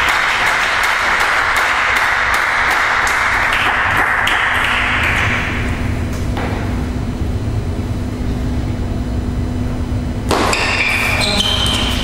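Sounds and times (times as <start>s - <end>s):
spectators clapping: 0.0s - 5.7s.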